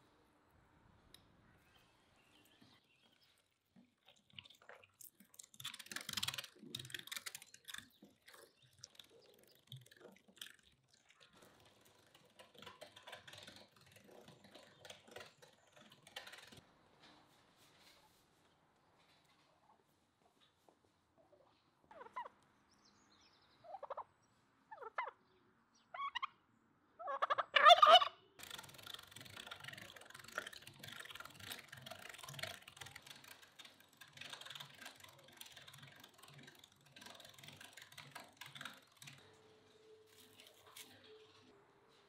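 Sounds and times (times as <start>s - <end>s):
hand-cranked meat grinder churning: 5.4s - 16.6s, 28.4s - 39.7s
turkey gobbling: 23.7s - 24.1s, 24.7s - 25.2s, 25.9s - 26.3s, 27.0s - 28.2s.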